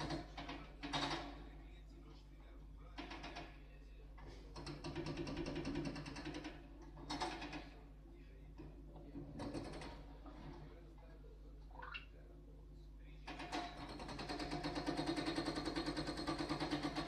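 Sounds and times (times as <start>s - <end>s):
fast rattling clatter: 4.6s - 7.7s, 9.2s - 10.7s, 13.3s - 17.0s.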